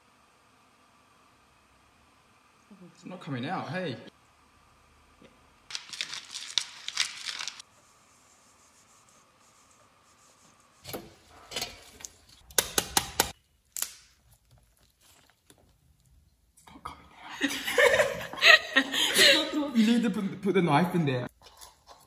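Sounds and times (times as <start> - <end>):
spice jar rattling shakes: 5.7 - 7.6.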